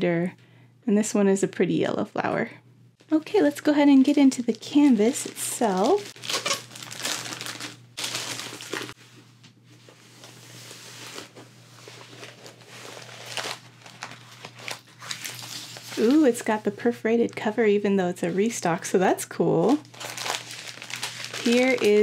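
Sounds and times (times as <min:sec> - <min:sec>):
plastic packaging crinkling: 0:03.3 - 0:09.0, 0:10.2 - 0:16.6, 0:19.8 - 0:22.0.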